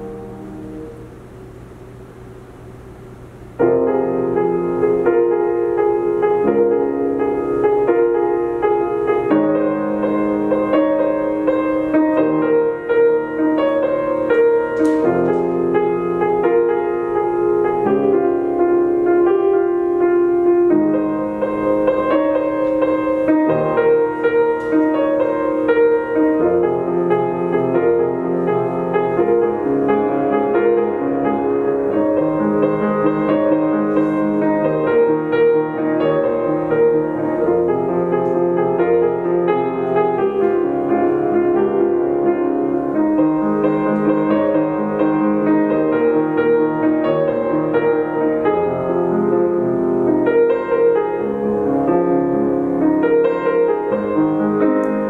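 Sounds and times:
solo grand piano chords: 0.0 - 55.0.

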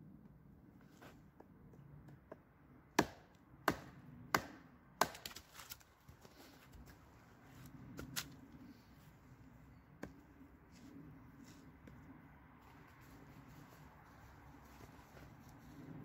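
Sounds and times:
log cracking as it splits: 3.0 - 6.1.

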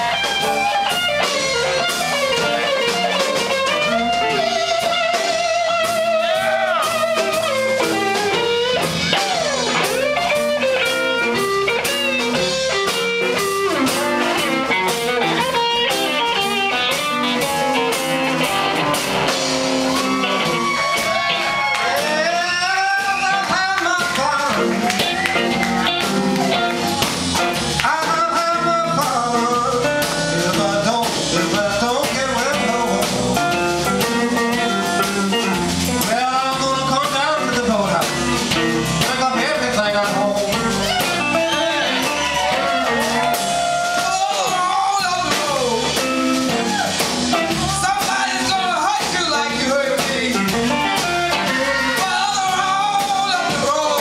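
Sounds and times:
blues band playing: 0.0 - 54.0
person singing: 20.2 - 54.0.

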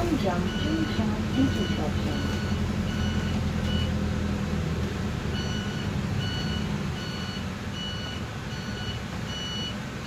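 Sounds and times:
low bus engine hum: 0.0 - 10.0
short high warning beeps: 0.4 - 3.9.

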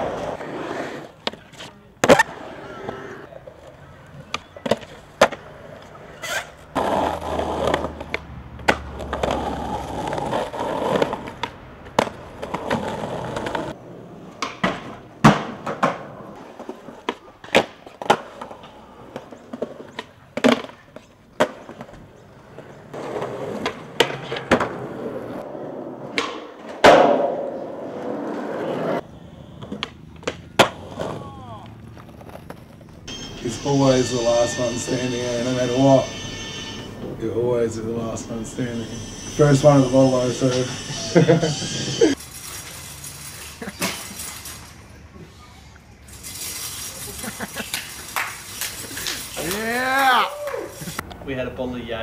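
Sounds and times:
skateboard rolling on concrete: 0.0 - 52.0
skateboard pops and slaps: 1.2 - 2.4, 4.3 - 5.4, 7.6 - 9.4, 14.4 - 18.6, 19.2 - 22.0, 26.1 - 27.6, 29.6 - 31.2.

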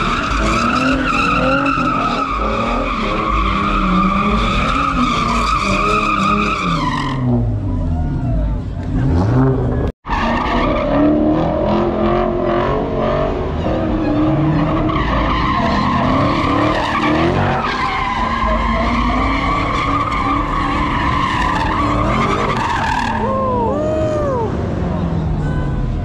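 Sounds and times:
tires squealing: 0.0 - 26.0
engine at high revs: 8.8 - 9.9.

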